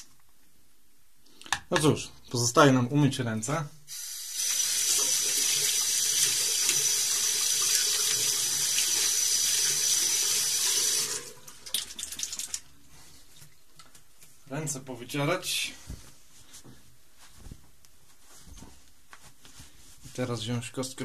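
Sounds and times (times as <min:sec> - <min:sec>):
tap water running into sink: 0:04.4 - 0:12.6.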